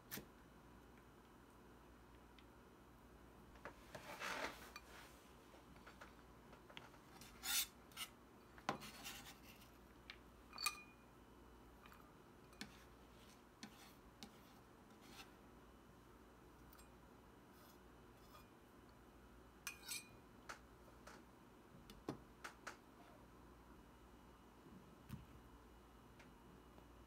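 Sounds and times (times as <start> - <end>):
knife scraping on cutting board: 7.1 - 9.8, 12.6 - 15.3, 19.7 - 20.1
clink on ceramic bowl: 10.5 - 11.0.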